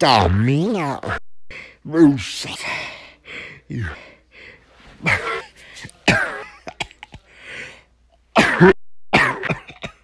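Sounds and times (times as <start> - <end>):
person coughing hard: 5.0 - 7.3, 8.3 - 10.0.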